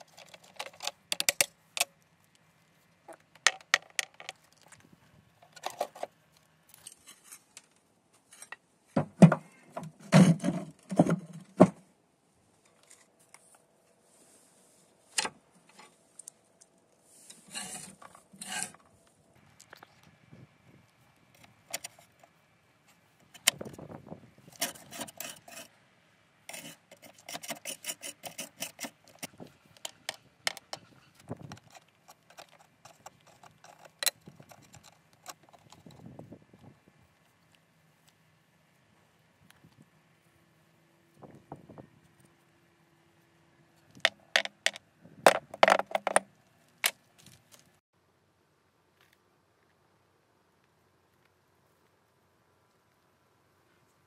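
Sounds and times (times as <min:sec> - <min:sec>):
screwdriver scraping rust: 0:17.3 - 0:18.8, 0:24.5 - 0:25.7, 0:26.5 - 0:36.1.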